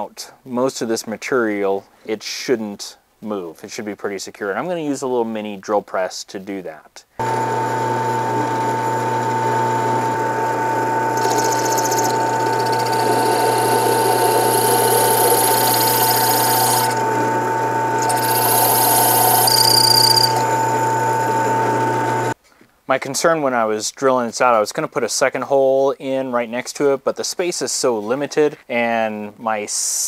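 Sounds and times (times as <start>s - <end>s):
drill bit grinding metal: 7.2s - 22.4s
drill press motor hum: 7.2s - 22.4s
drill bit squealing: 9.8s - 22.4s.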